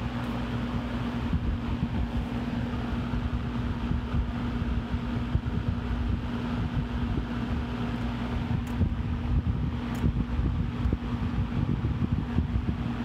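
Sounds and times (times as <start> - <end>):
fan air rushing: 0.0 - 13.0
fan motor hum: 0.0 - 13.0
wind buffeting microphone: 1.1 - 13.0.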